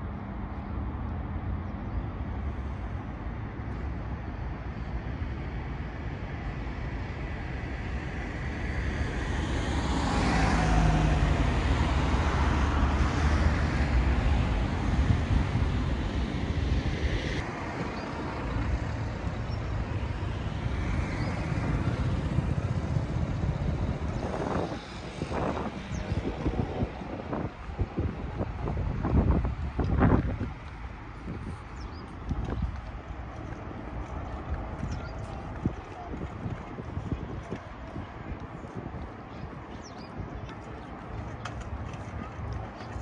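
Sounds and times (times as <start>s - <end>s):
road traffic noise: 0.0s - 43.0s
car passing close by: 8.7s - 28.5s.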